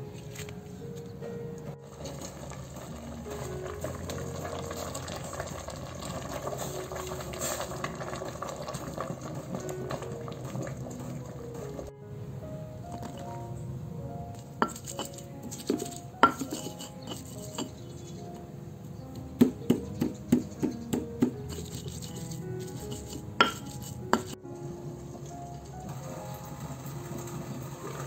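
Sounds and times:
utensils knocking against pots: 14.6s - 17.8s, 19.7s - 24.4s.

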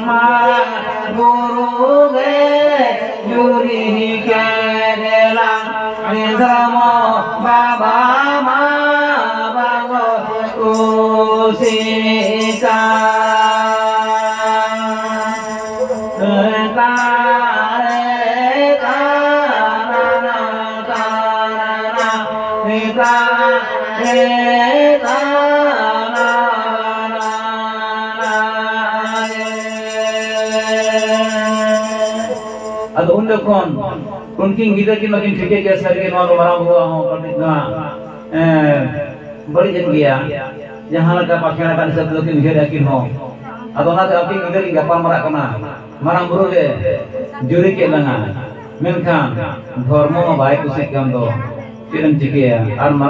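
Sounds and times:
women singing folk song: 0.0s - 31.0s
jingles shaken: 10.7s - 18.2s, 22.0s - 34.4s.

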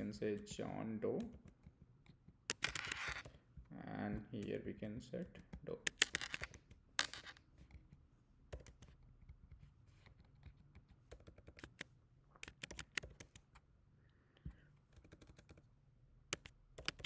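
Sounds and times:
typing on computer keyboard: 8.5s - 9.4s, 10.0s - 13.6s, 14.9s - 15.7s, 16.3s - 17.0s.

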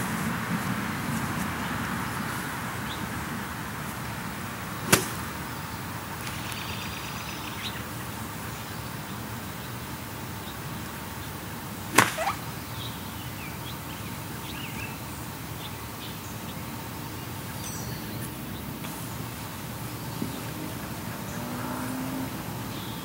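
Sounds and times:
birds chirping: 0.0s - 23.0s
golf club striking ball: 4.8s - 5.4s, 11.9s - 12.4s.

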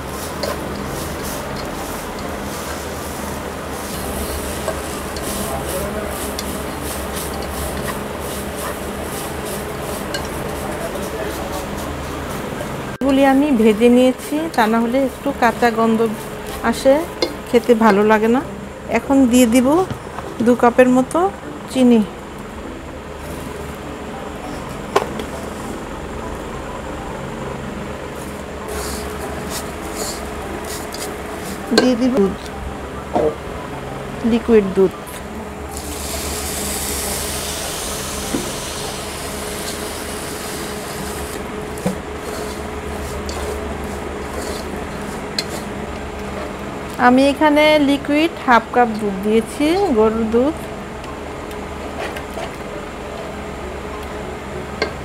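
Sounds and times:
spatula scraping in frying pan: 0.0s - 12.5s, 28.7s - 31.9s, 42.2s - 45.8s
induction cooktop hum: 0.0s - 55.0s
steady background noise: 0.0s - 55.0s.

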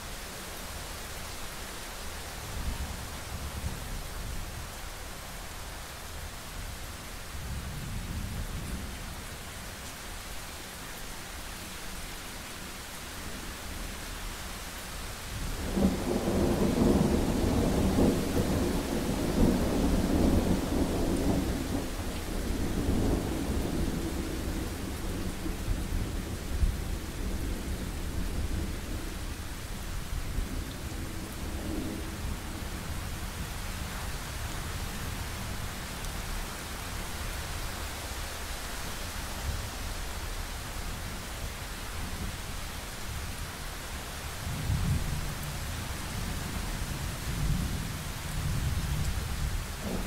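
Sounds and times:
rain hiss: 0.0s - 50.0s
thunder rumbling: 48.4s - 50.0s.

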